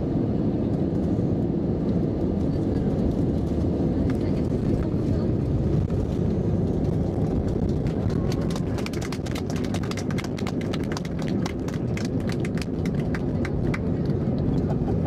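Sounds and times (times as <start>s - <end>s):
aircraft cabin rumble: 0.0s - 15.0s.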